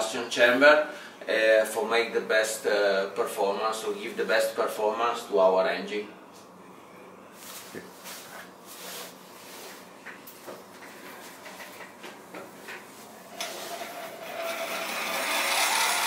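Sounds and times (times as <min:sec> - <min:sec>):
rotary grinder grinding metal: 0:13.4 - 0:16.0.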